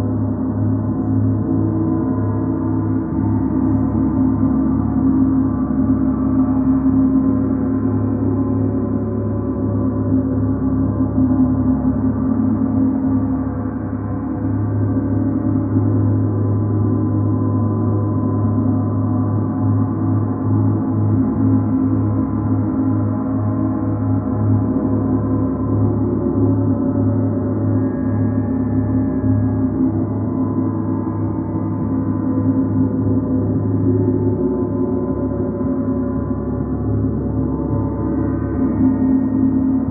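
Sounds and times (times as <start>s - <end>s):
deep throbbing hum: 0.0s - 39.9s.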